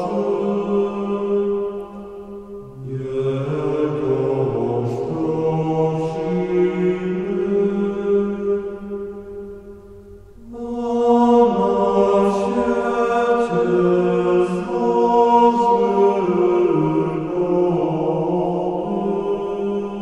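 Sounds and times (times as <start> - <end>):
slow chant-like music: 0.0 - 20.0.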